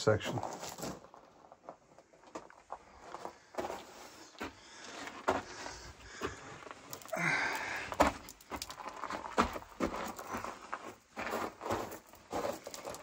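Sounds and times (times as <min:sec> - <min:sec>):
footsteps crunching on loose rock: 0:00.0 - 0:13.0
heavy breathing: 0:03.0 - 0:08.3.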